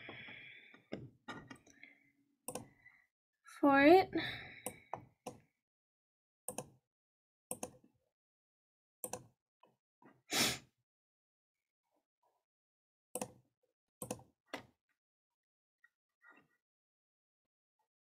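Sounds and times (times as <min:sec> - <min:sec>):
computer mouse clicks: 0:02.5 - 0:02.7, 0:06.5 - 0:06.7, 0:07.5 - 0:07.8, 0:09.0 - 0:09.2.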